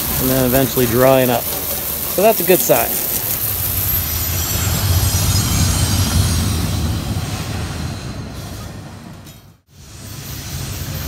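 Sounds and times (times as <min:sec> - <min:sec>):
high-pitched squealing tones: 0:00.0 - 0:08.8
steady low rumble: 0:02.8 - 0:09.2.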